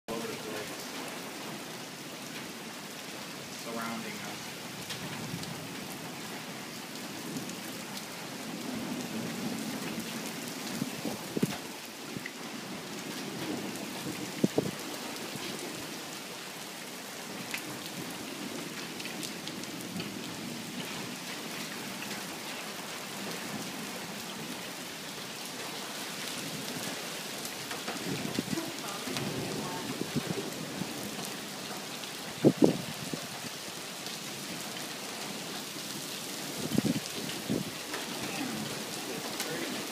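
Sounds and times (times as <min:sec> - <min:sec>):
steady rain falling: 0:00.0 - 0:39.9
thunder rumbling: 0:27.6 - 0:31.6, 0:32.2 - 0:33.4.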